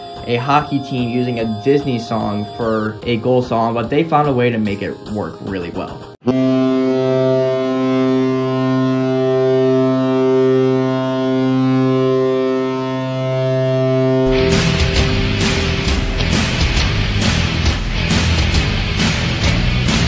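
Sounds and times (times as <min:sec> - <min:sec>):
hockey goal horn blast: 0:06.2 - 0:16.7.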